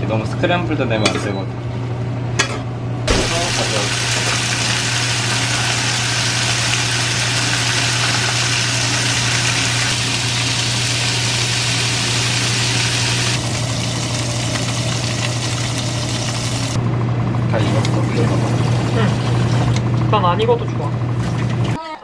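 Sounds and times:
constant low hum: 0.0 - 21.8
steaks sizzling in a frying pan: 3.1 - 16.8.

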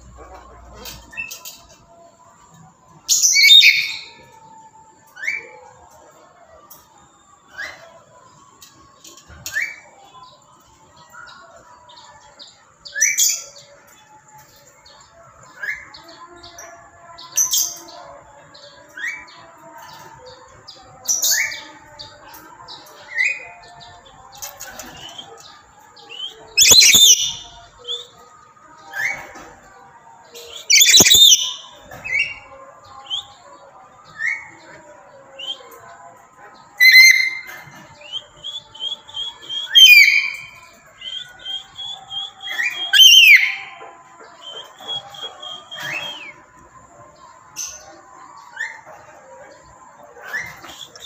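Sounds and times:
parrot calling and screeching: 26.6 - 27.4, 30.7 - 31.6.

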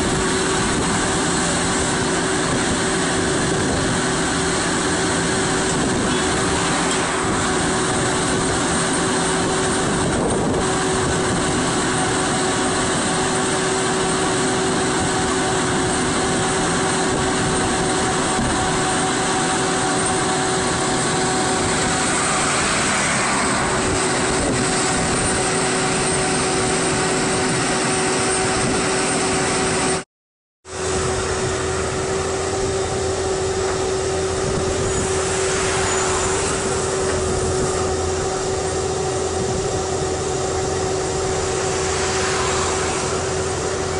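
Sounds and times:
diesel engine running: 0.0 - 30.0, 30.7 - 43.9.

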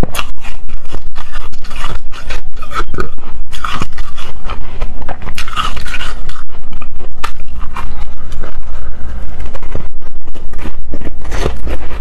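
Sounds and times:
teeth crunching ice: 0.0 - 8.4.

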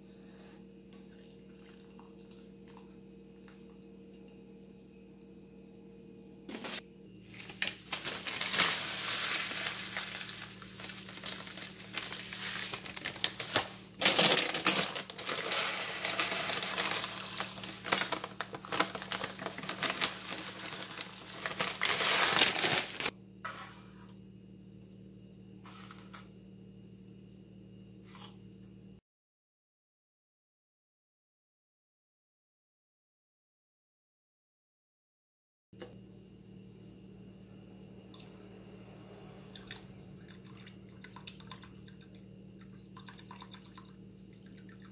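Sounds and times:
plastic bag crinkling: 6.5 - 23.1
sugar pouring into liquid: 6.6 - 23.1.

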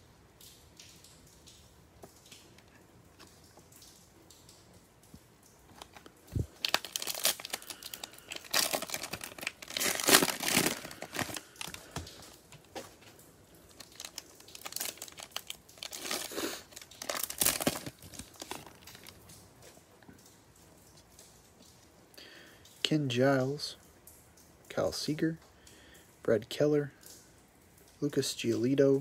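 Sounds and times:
plastic wrappers crinkling: 5.6 - 20.0.

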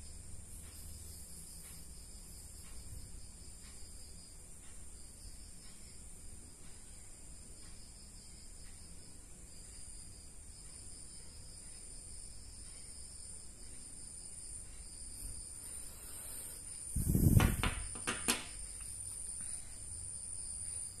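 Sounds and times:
insect chirring: 0.0 - 21.0
dull bump of handling: 17.0 - 18.6.

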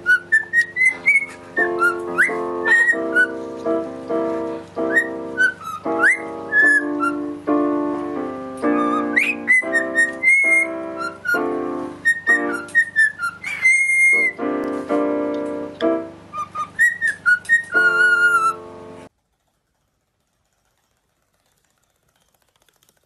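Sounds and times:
cockatiel whistling: 0.0 - 3.4, 4.8 - 7.3, 8.6 - 14.5, 16.3 - 18.6
digital piano chords: 0.0 - 19.1.

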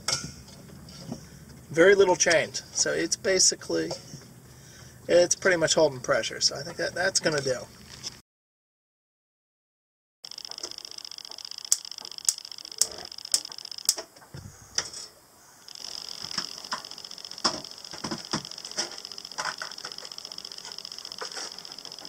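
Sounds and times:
sharp clicks: 10.3 - 14.1, 15.7 - 22.0
steady high hiss: 10.3 - 22.0.

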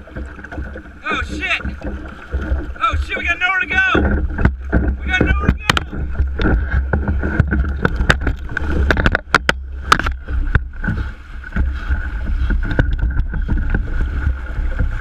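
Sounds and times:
paddle splashes and knocks: 0.0 - 15.0
sharp clicks and knocks: 3.9 - 15.0.

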